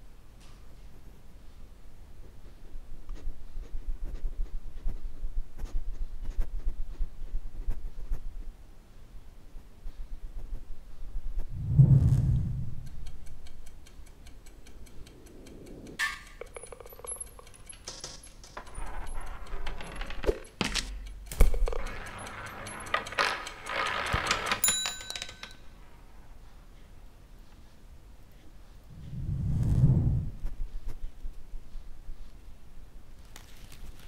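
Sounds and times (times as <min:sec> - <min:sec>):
rapid even ticking: 0:12.2 - 0:24.7
balls rolling and dominoes toppling: 0:16.0 - 0:26.3
desk bell ding: 0:24.4 - 0:25.6.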